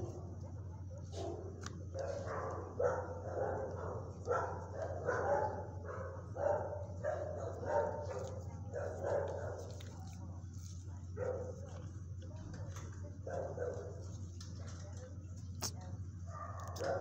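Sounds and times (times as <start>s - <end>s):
dog barking: 0.0s - 11.8s, 13.2s - 14.3s, 16.3s - 17.0s
steady low hum: 0.0s - 17.0s.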